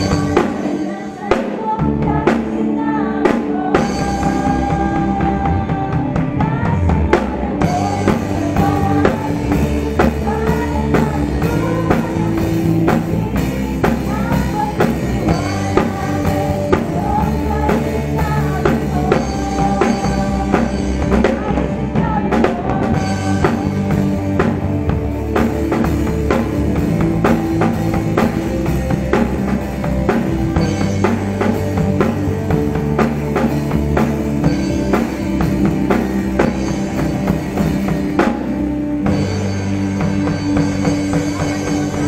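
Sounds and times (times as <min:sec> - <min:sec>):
drum kit: 0:00.0 - 0:42.0
rock band playing: 0:00.0 - 0:42.0.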